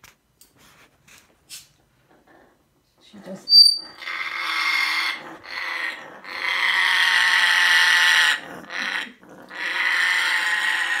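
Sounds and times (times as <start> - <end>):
parrot raspy growling screech: 3.5 - 11.0.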